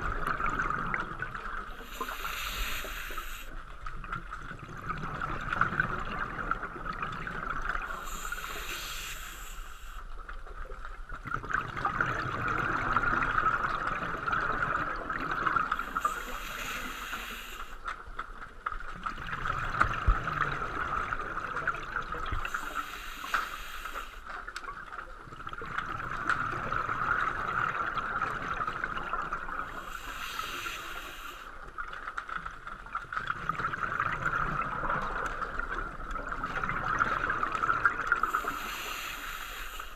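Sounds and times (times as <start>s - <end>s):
exhaled bubbles underwater: 0.0s - 39.9s
regulator hiss: 1.8s - 3.6s, 7.9s - 10.1s, 15.8s - 17.9s, 22.5s - 24.3s, 29.7s - 31.6s, 38.2s - 39.9s.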